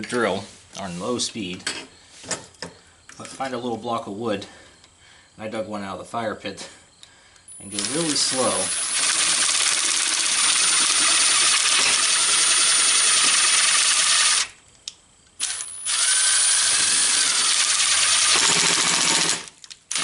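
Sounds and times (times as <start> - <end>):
cordless drill running: 7.6 - 14.6, 15.4 - 20.0.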